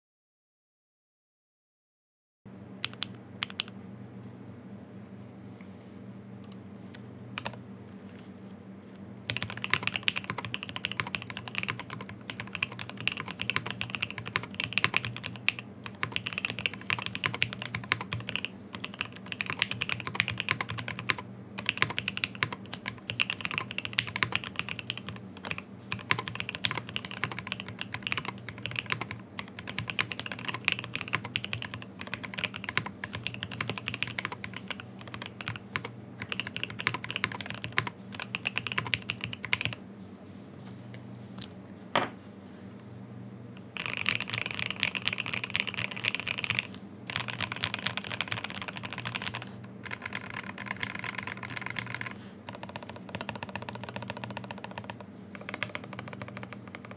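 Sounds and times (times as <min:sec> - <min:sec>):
mechanical keyboard typing: 0:02.8 - 0:03.7, 0:09.3 - 0:39.8, 0:43.8 - 0:56.9.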